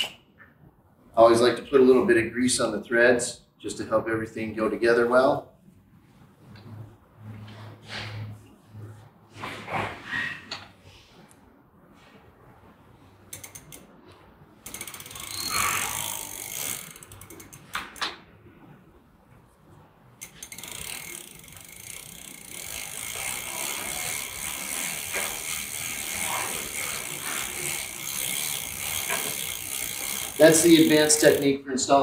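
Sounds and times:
bicycle freewheel ratcheting: 13.3s - 14.0s, 14.6s - 18.0s, 20.2s - 31.6s.

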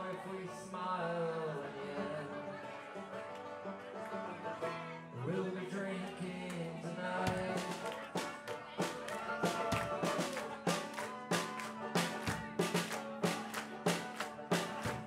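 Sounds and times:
live band with acoustic guitar: 0.0s - 15.0s
percussion beat: 7.3s - 15.0s.

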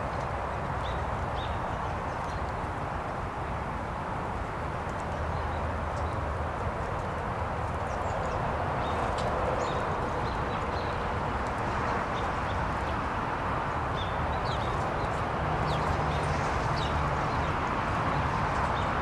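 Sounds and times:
small songbirds chirping: 0.2s - 2.6s, 7.6s - 11.1s, 13.8s - 19.0s.

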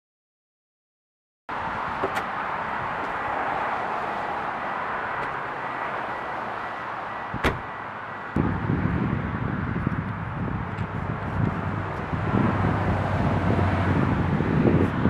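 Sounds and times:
car trunk lid slamming: 7.3s - 7.7s
wind rumble on microphone: 8.4s - 15.0s.

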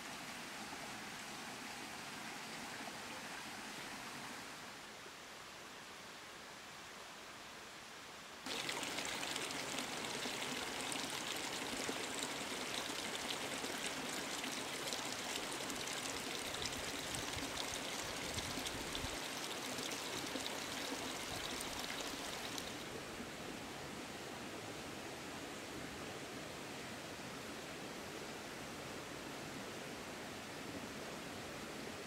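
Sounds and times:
stream babbling: 8.4s - 32.0s.

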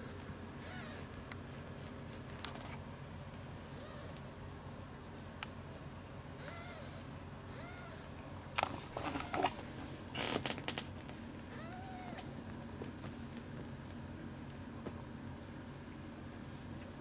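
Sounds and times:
kitten mewing: 0.6s - 1.1s, 3.7s - 4.2s, 6.4s - 8.1s, 9.0s - 9.8s, 11.5s - 12.3s
sharp clicks and rustles: 2.3s - 2.8s.

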